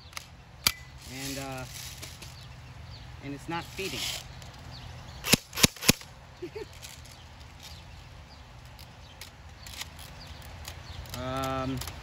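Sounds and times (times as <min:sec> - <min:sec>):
airsoft gun handling clicks: 0:00.0 - 0:00.9, 0:05.2 - 0:06.1, 0:08.6 - 0:12.0.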